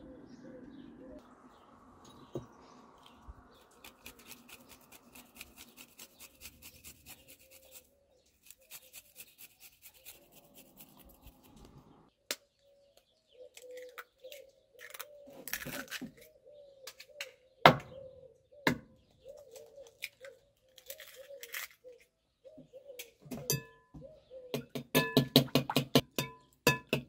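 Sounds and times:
dove cooing: 0:00.0 - 0:01.2, 0:12.7 - 0:15.4, 0:16.3 - 0:20.5, 0:21.1 - 0:24.6
knife tapping glass bowl: 0:25.0 - 0:27.0.

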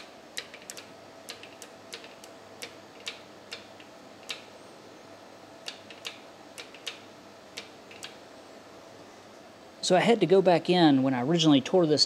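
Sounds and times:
small metallic clicks and taps: 0:00.4 - 0:04.5.

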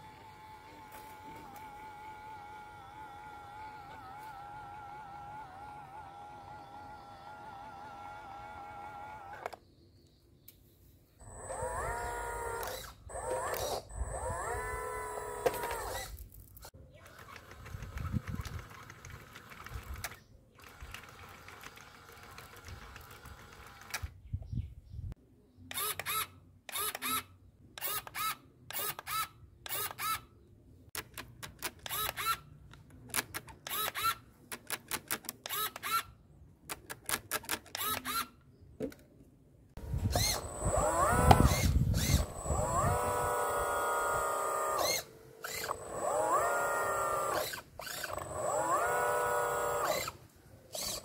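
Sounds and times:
small electric motor whirring: 0:00.0 - 0:09.6, 0:11.2 - 0:24.2, 0:25.7 - 0:30.2, 0:31.6 - 0:32.4, 0:33.6 - 0:34.2, 0:37.7 - 0:38.3, 0:39.8 - 0:51.0
sharp mechanical clicks: 0:11.2 - 0:24.2, 0:25.7 - 0:30.2, 0:30.9 - 0:39.0, 0:39.8 - 0:51.0.

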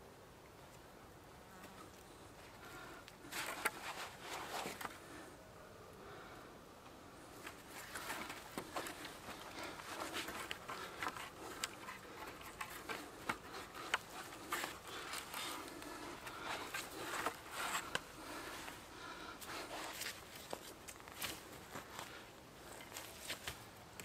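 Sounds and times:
cord rubbing on bark: 0:07.4 - 0:18.8.

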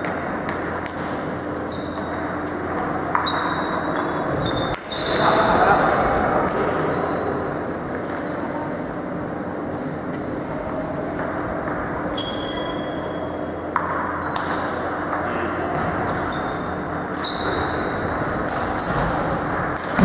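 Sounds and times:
table tennis balls clicking: 0:13.7 - 0:20.0.

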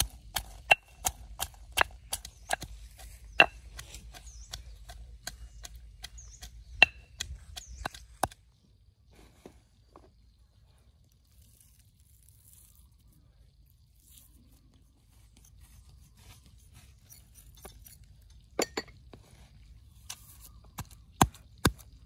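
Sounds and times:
pestle pounding in stone mortar: 0:00.0 - 0:08.4.

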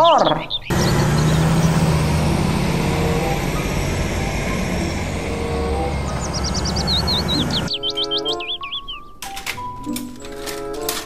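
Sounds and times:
diesel engine droning: 0:00.7 - 0:07.8.

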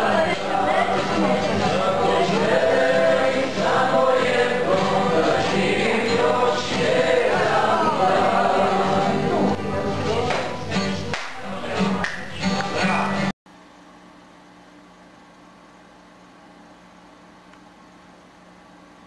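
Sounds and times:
group singing folk song: 0:00.0 - 0:13.3
strummed guitar: 0:00.0 - 0:13.3.

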